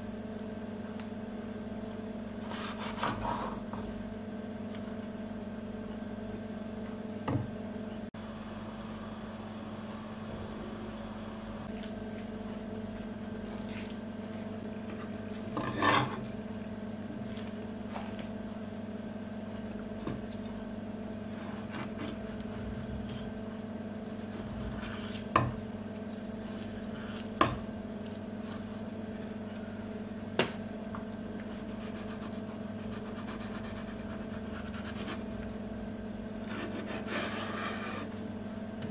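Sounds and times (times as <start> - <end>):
steady low hum: 0.0 - 38.9
knife slicing and scraping fish: 2.4 - 3.9, 21.3 - 23.3, 36.4 - 38.1.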